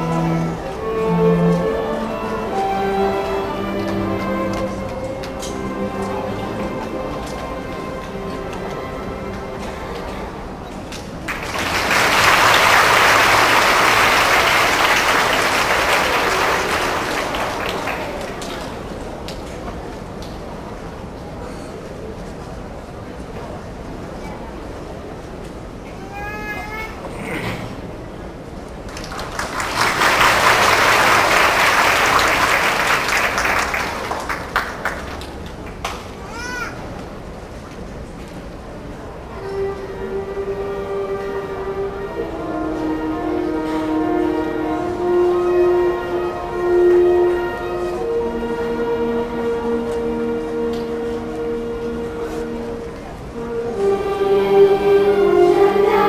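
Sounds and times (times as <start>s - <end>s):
string ensemble held notes: 0.0s - 19.3s, 29.0s - 36.0s, 38.7s - 56.0s
audience applause: 11.2s - 19.0s, 28.9s - 36.0s.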